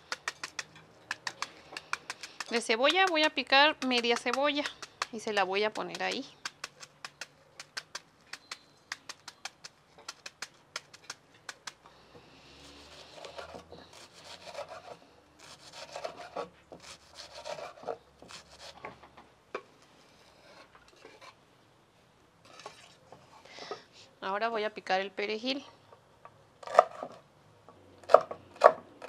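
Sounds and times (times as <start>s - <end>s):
knife chopping on wooden board: 0.1s - 8.0s
knife scraping cutting board: 12.7s - 18.9s, 20.2s - 21.4s.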